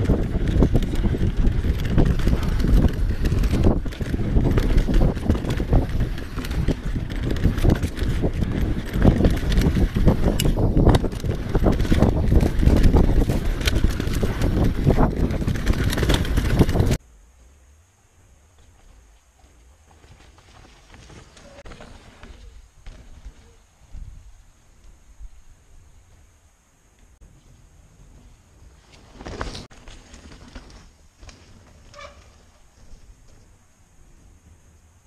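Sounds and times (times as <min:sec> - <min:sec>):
wind on microphone: 0:00.0 - 0:17.0
bike rattling over bumps: 0:00.0 - 0:17.6, 0:18.3 - 0:24.4, 0:27.2 - 0:35.0
tyres on dirt: 0:00.0 - 0:35.0.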